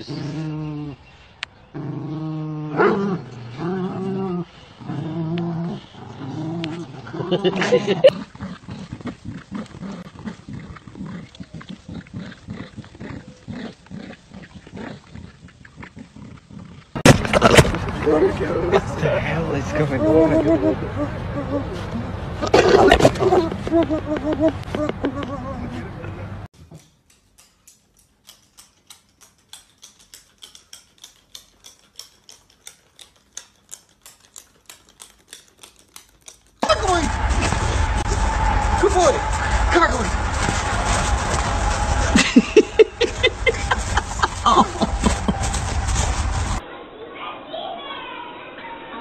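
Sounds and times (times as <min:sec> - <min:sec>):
dogs play-growling: 0:01.7 - 0:18.4, 0:19.6 - 0:25.9
dog claws clicking on hard floor: 0:26.6 - 0:36.6.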